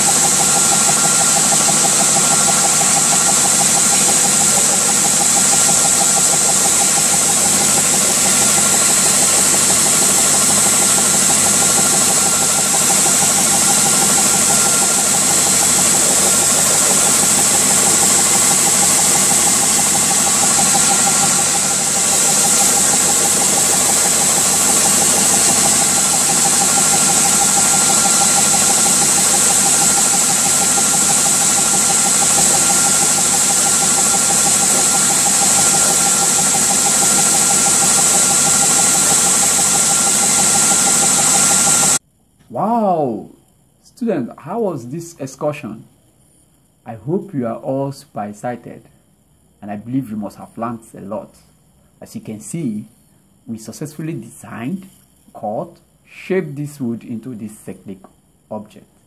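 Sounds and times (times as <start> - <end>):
belt sander sanding wood: 0.0 - 42.0.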